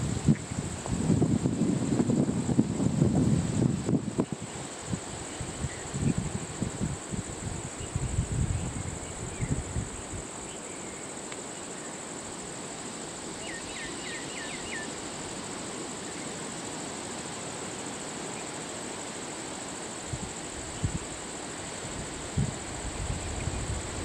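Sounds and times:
wind on microphone: 0.0 - 10.3, 20.1 - 21.2, 21.8 - 24.0
insects droning: 0.0 - 24.0.

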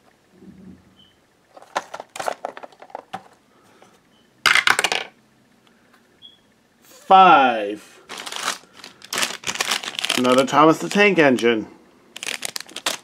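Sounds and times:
die clattering through dice tower: 4.5 - 5.2.

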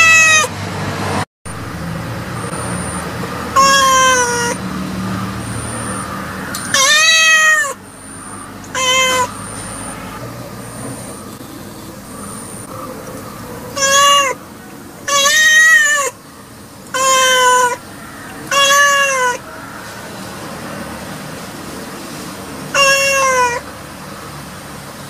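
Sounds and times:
cat meowing: 0.0 - 0.5, 3.6 - 4.6, 6.1 - 7.8, 8.7 - 10.2, 13.2 - 16.2, 16.9 - 19.8, 22.7 - 23.7.

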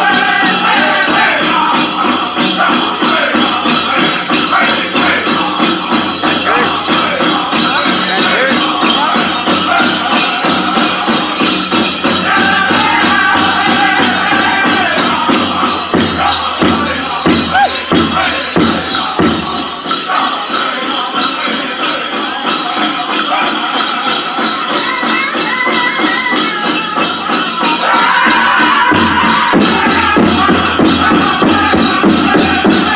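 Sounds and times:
group singing: 0.0 - 32.9
jingling bells: 0.0 - 32.9
steady drum beat: 0.0 - 32.9.

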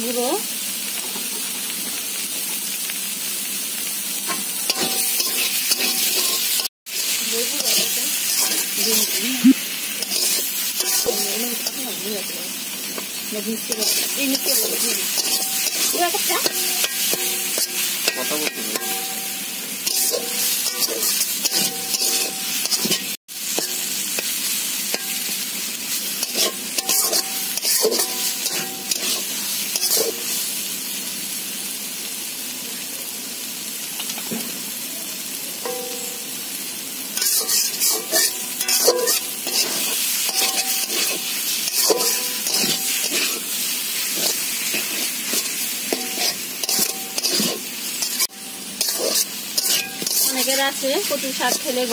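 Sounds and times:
frying sizzle: 0.0 - 51.9
metal spatula scraping pan: 4.3 - 6.7, 7.5 - 9.2, 10.0 - 11.9, 13.7 - 23.8, 26.2 - 30.2, 37.2 - 51.9.

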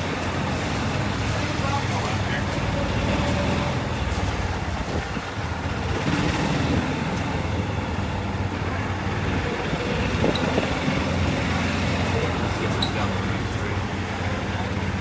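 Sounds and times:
wind across microphone: 4.6 - 6.0.

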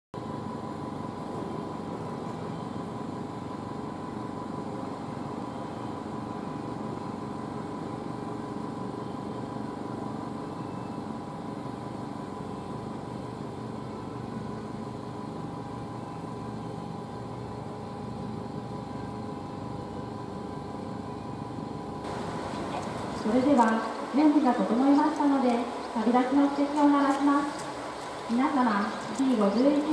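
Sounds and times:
diesel engine idling: 22.0 - 29.9.

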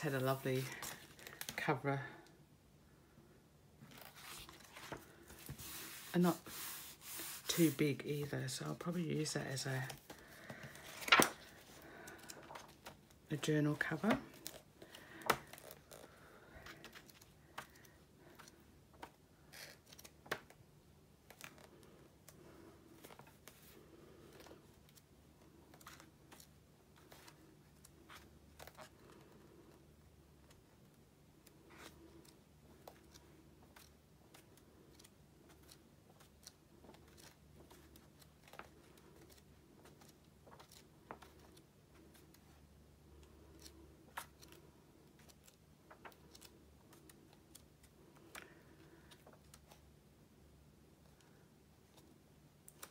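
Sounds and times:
book pages turning: 0.0 - 1.6, 3.8 - 20.6, 21.2 - 29.6, 31.4 - 42.6, 43.2 - 49.8, 51.8 - 52.9.

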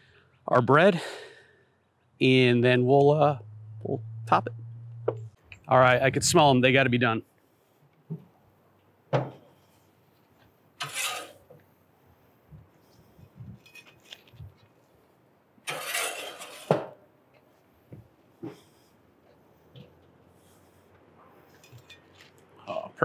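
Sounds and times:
metal spatula scraping grill grates: 10.8 - 11.5, 15.7 - 16.8.

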